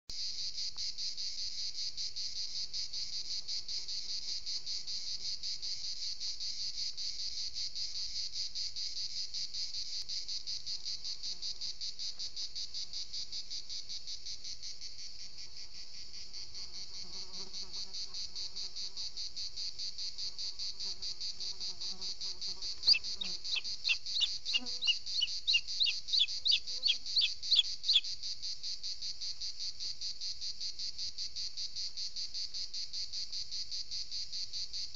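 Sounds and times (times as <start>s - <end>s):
insects chirring: 10.0s - 30.4s
bird sharp high calls: 22.9s - 28.0s.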